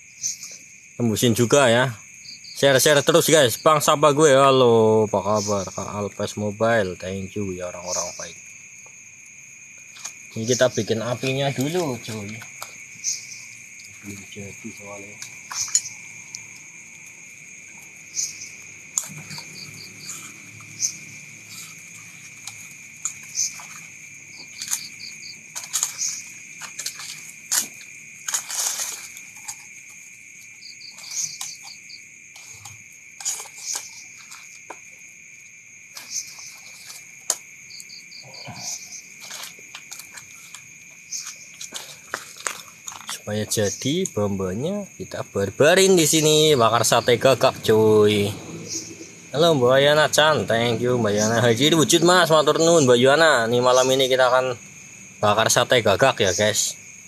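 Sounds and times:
insect chirping trills: 0.0 - 57.0
night insects droning: 0.0 - 57.0
campfire being poked: 9.8 - 12.8, 13.4 - 34.9, 35.9 - 38.0, 38.6 - 44.2
campfire crackling and popping: 13.4 - 24.8.

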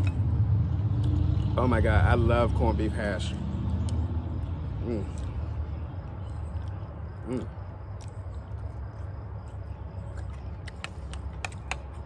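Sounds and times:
chewing and lip-smacking: 3.6 - 12.0
man humming mm: 7.2 - 7.6.

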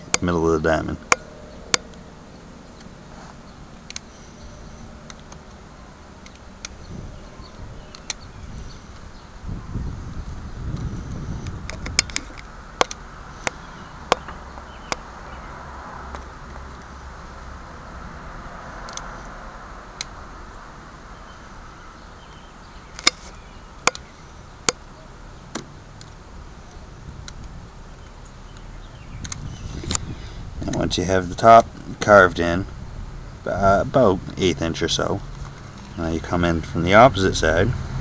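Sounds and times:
faint scraping: 3.0 - 5.0.

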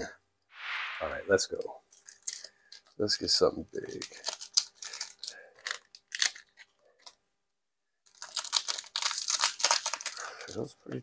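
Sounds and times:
foil wrapper crinkling and tearing: 4.0 - 7.2, 8.1 - 10.7.

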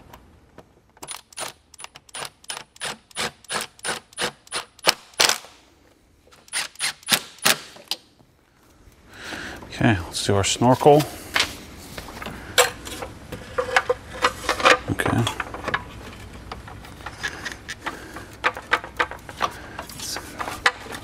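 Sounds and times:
intake parts clicking and rubbing: 10.9 - 21.0.

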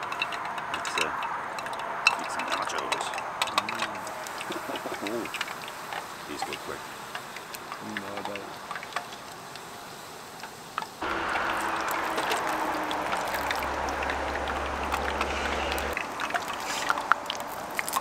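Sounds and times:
food sizzling in hot oil: 3.9 - 18.0.

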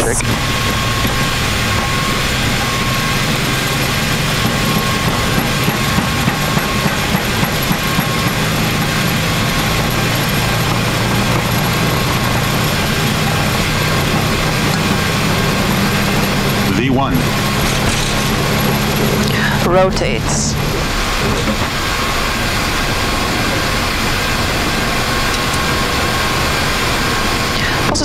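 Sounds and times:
jet engines at takeoff thrust: 0.0 - 28.0.

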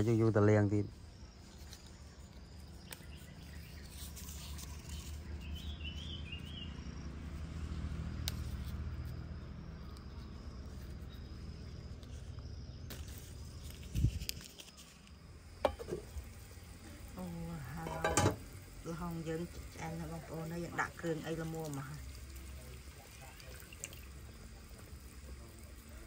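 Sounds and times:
insects droning: 0.0 - 26.0
bird chirps: 1.4 - 7.0.

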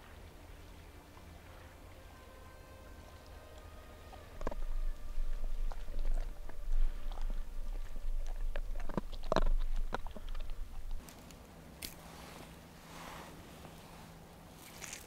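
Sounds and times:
low rumble: 0.0 - 14.6
dog chewing with crunching bites: 3.2 - 12.2, 14.5 - 15.0.

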